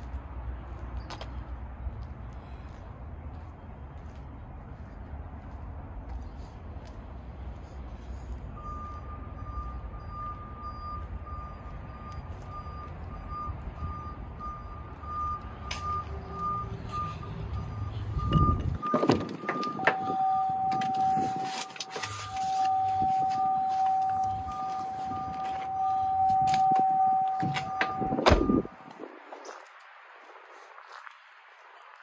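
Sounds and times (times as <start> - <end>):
electronic beeper beeping: 8.7 - 28.8.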